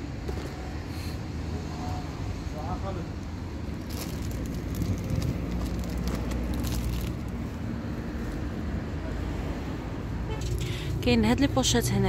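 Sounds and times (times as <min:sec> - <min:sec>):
crackling handling noise: 0:03.7 - 0:07.6.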